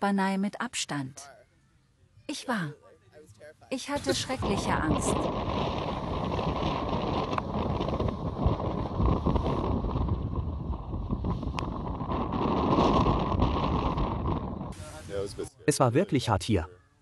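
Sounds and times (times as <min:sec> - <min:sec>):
wind buffeting microphone: 0:04.0 - 0:15.4.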